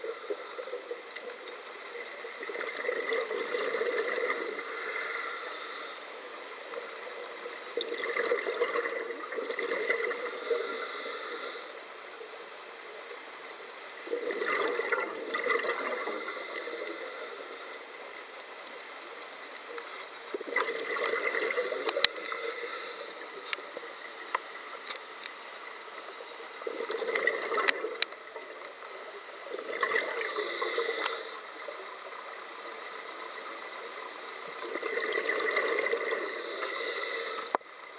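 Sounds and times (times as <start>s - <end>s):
regulator breathing underwater: 0.0s - 1.0s, 3.0s - 6.4s, 9.6s - 11.8s, 14.2s - 18.0s, 21.1s - 23.4s, 29.7s - 31.5s, 35.2s - 37.6s.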